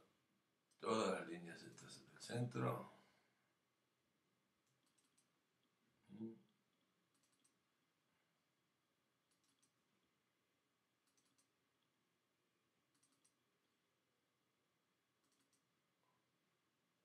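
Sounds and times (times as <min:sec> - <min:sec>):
computer mouse clicks: 0:04.6 - 0:05.3, 0:07.1 - 0:07.6, 0:09.2 - 0:09.8, 0:11.0 - 0:11.6, 0:12.9 - 0:13.4, 0:15.2 - 0:15.7.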